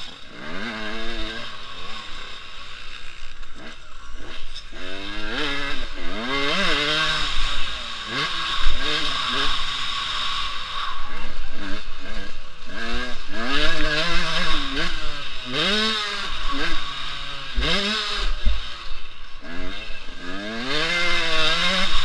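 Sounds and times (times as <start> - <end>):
motorbike engine revving: 0.0 - 22.0.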